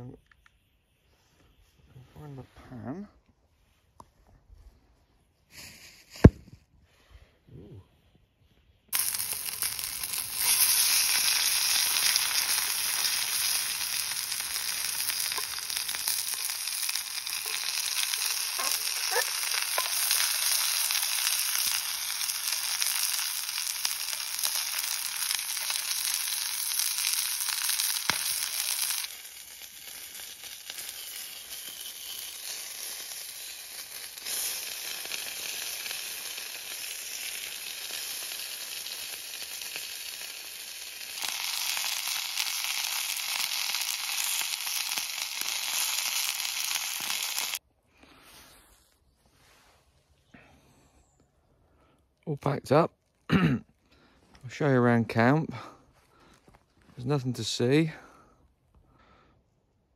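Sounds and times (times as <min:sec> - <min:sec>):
pan sizzling on stove: 0:08.9 - 0:47.6.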